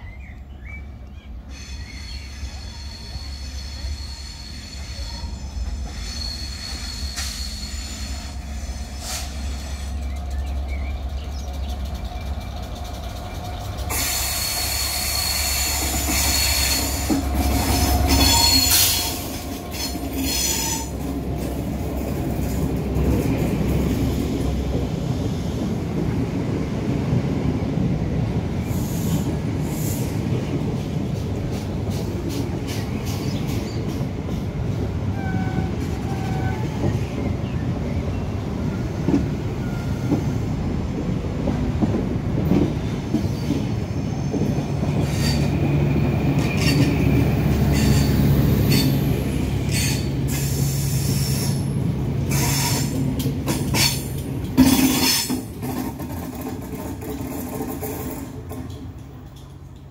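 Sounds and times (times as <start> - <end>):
wheel squeal on rails: 1.5 - 10.6, 11.4 - 21.1, 35.1 - 37.3, 43.1 - 57.6.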